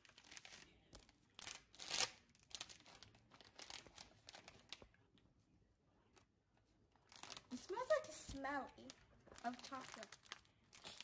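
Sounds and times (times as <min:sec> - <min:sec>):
snack wrapper crinkling and tearing: 0:07.0 - 0:08.0, 0:08.8 - 0:11.0.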